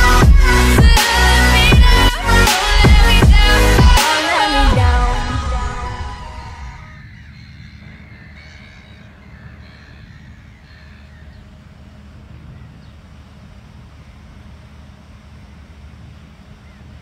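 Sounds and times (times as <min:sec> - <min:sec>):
low steady rumble: 0:00.0 - 0:17.0
seabirds calling: 0:06.1 - 0:17.0.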